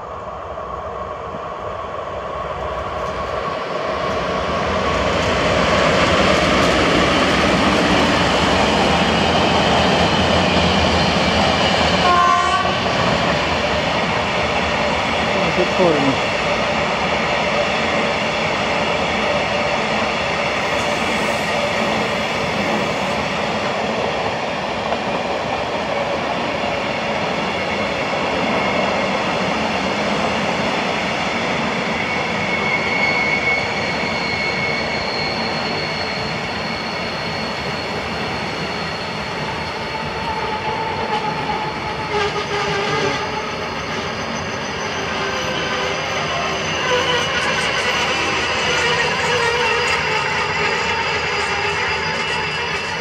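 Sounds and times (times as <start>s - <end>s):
train wheels rattling on rail: 2.9s - 53.0s
high squeal from running gear: 20.6s - 23.6s, 31.8s - 53.0s.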